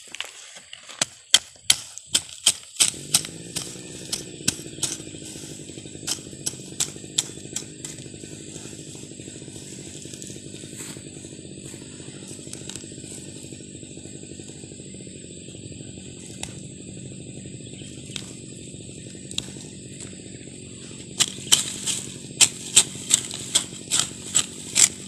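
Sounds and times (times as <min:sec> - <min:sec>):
hand hoe chopping soil: 0:00.0 - 0:13.6, 0:16.2 - 0:16.7, 0:19.1 - 0:20.2, 0:21.0 - 0:25.0
low motor hum: 0:02.1 - 0:25.0.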